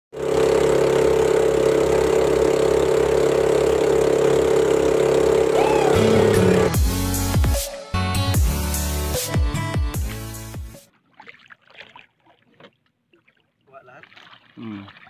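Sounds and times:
boat engine droning: 0.2s - 7.3s
low engine tone: 0.2s - 7.4s.

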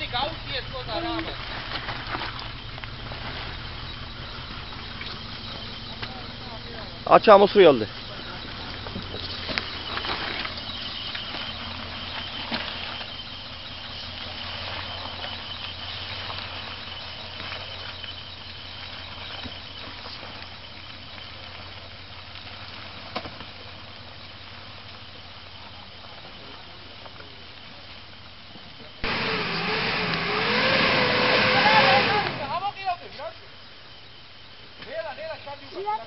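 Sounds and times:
steady hiss and rustle: 0.0s - 36.0s
engine running at low revs: 29.0s - 32.6s.

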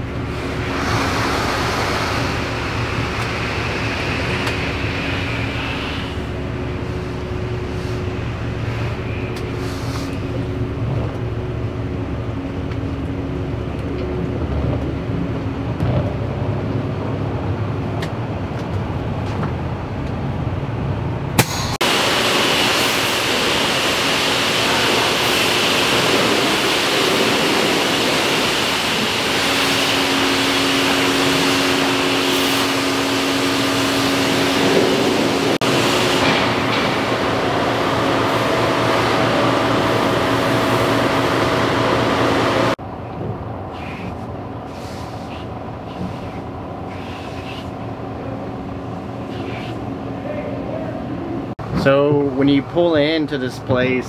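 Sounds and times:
machine hum: 0.0s - 54.0s
pressure washer hissing: 0.4s - 6.3s, 21.4s - 42.8s.

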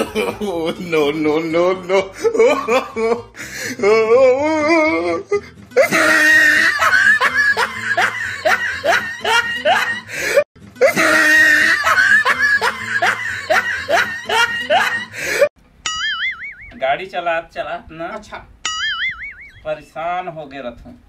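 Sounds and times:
canned laughter: 0.0s - 3.3s, 5.8s - 15.5s
low background music: 0.0s - 15.4s.

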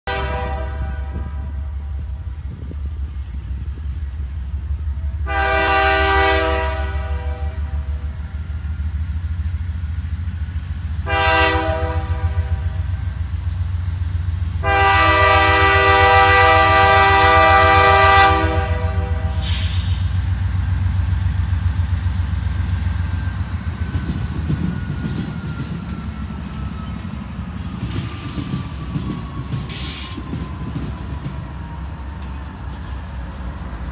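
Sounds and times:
train air horn blasts: 0.0s - 2.0s, 5.1s - 8.0s, 11.0s - 13.1s, 14.6s - 20.2s
locomotive engine rumbling: 0.1s - 33.9s.

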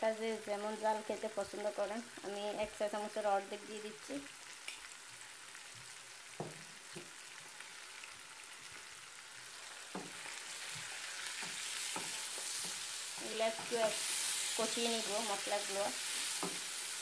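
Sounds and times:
onions sizzling in oil: 0.0s - 17.0s
spatula stirring: 9.8s - 16.9s.

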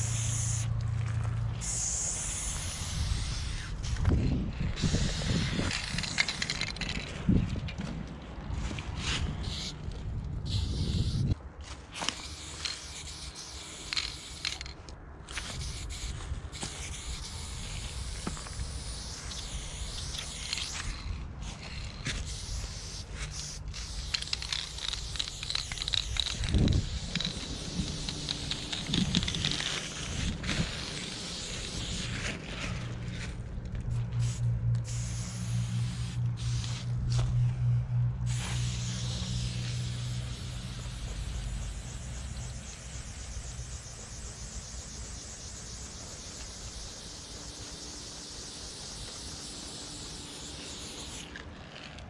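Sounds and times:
spray paint can hissing: 0.0s - 0.8s, 1.6s - 7.1s, 8.9s - 37.3s, 38.2s - 52.0s
low steady hum: 20.8s - 52.0s.

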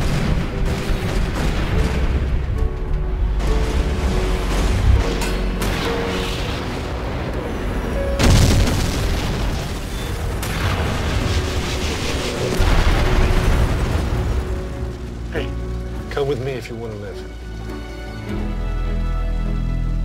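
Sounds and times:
explosion booms: 0.0s - 2.6s, 8.2s - 15.0s
rumbling: 0.0s - 17.7s
background score music: 0.0s - 20.0s.

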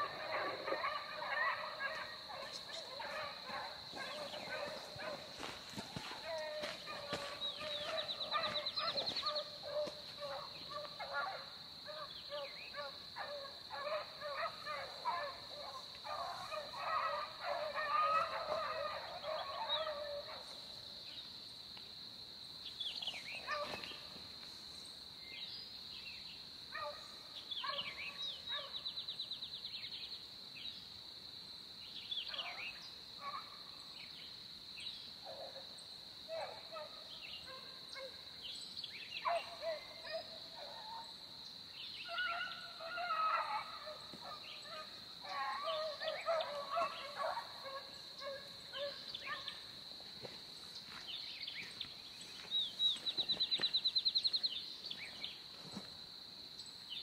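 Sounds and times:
beagles baying: 0.0s - 20.7s, 23.4s - 24.0s, 39.2s - 41.2s, 42.0s - 49.8s.

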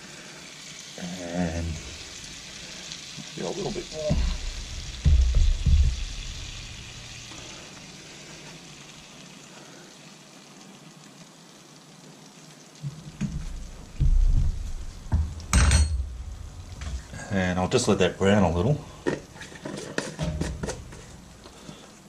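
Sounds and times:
butter and flour sizzling in pan: 0.0s - 18.2s
low bumps: 3.7s - 7.6s, 12.8s - 17.3s.

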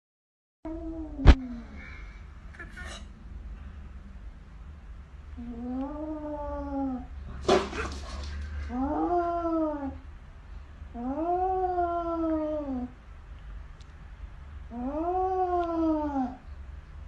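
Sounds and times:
cat hissing: 7.3s - 8.8s.

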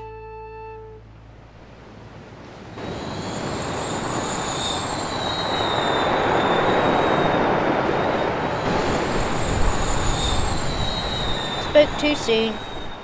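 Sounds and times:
surging sea: 0.6s - 13.0s
rushing wind: 1.1s - 13.0s
high-pitched whistle: 2.8s - 13.0s.

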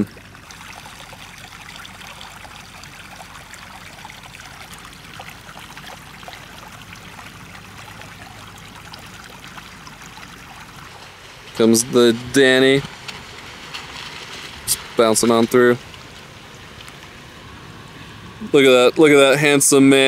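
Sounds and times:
stream babbling over rocks: 0.0s - 17.6s, 18.2s - 20.0s.

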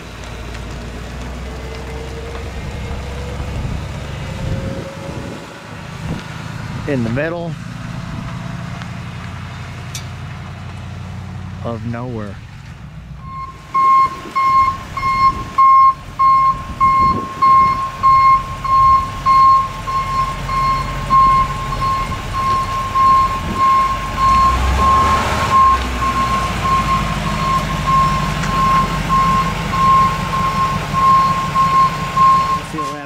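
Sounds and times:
truck engine rumbling: 0.0s - 33.0s
truck backup alarm beeping: 13.2s - 33.0s.

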